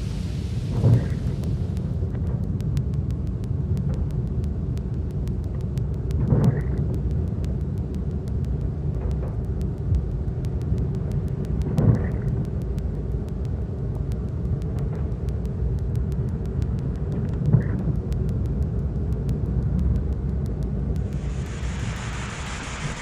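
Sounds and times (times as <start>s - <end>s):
rain hiss: 0.0s - 2.2s, 21.0s - 23.0s.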